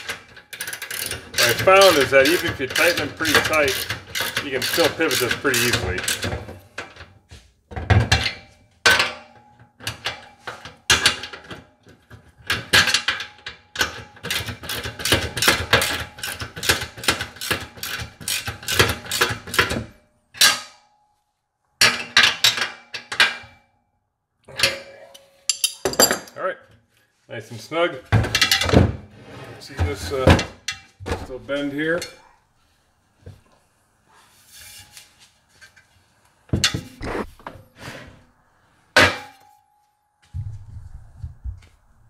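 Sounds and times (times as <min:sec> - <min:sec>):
wrench clicking on metal: 0:00.0 - 0:06.3, 0:13.8 - 0:19.7.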